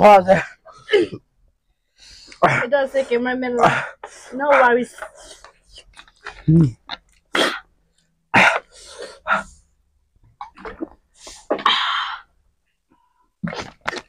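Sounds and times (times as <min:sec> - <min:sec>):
people sneezing and coughing: 0:02.4 - 0:02.8, 0:07.3 - 0:07.7, 0:08.3 - 0:09.5.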